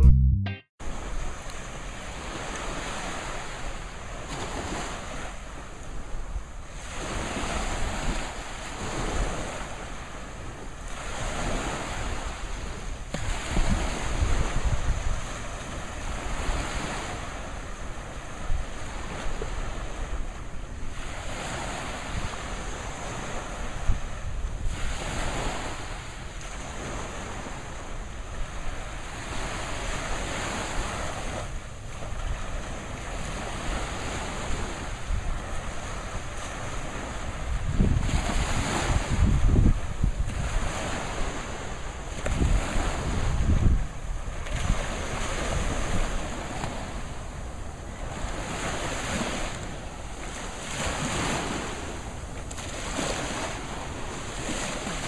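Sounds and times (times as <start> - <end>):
surf waves breaking on sand: 0.8 - 55.0
wind buffeting microphone: 11.0 - 55.0.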